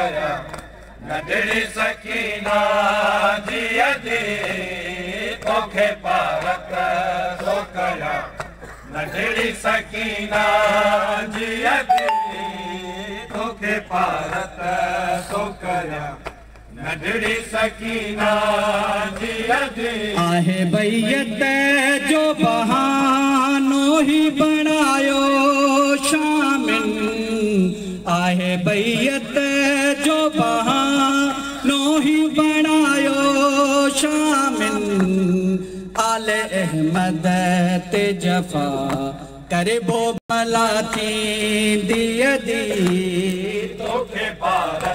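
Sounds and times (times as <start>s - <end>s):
man chanting a lament: 19.7s - 44.4s.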